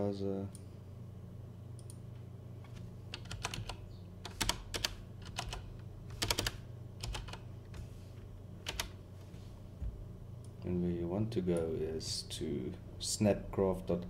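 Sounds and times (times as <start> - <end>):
keyboard typing: 3.1 - 7.4, 8.6 - 9.0.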